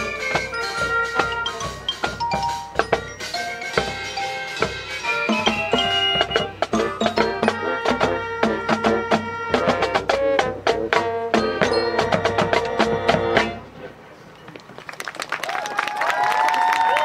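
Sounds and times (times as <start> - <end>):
marching drum hits: 0.0 - 13.6
marimba: 0.0 - 13.6
brass chords: 0.0 - 14.0.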